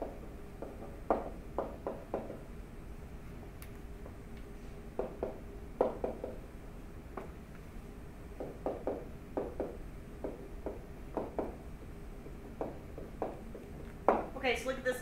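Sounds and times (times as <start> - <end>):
faint steady hum: 0.0 - 15.0
stylus tapping on tablet: 8.4 - 11.6, 12.2 - 14.3.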